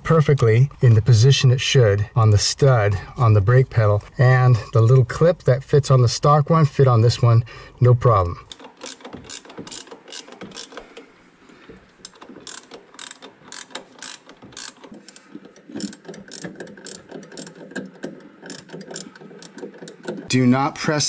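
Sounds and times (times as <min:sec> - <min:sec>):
socket ratchet clicking: 0:08.5 - 0:11.0, 0:12.0 - 0:20.3.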